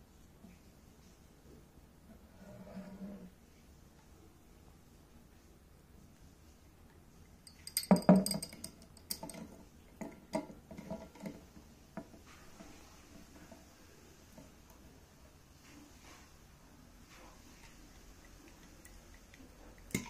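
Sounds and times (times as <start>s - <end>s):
corkscrew clinking on glass bottle: 7.5s - 9.5s.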